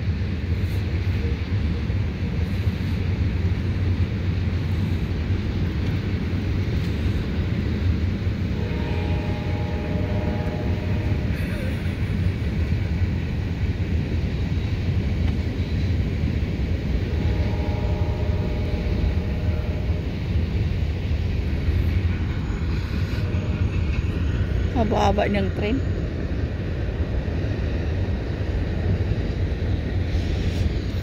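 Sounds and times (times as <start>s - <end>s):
steady low rumble: 0.0s - 31.0s
train horn blasts: 8.5s - 11.4s, 17.0s - 20.2s.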